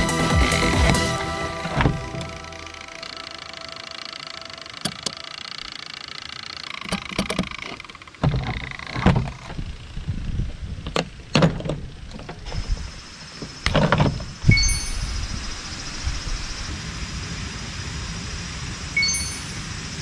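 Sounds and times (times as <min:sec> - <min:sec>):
music: 0:00.0 - 0:03.7.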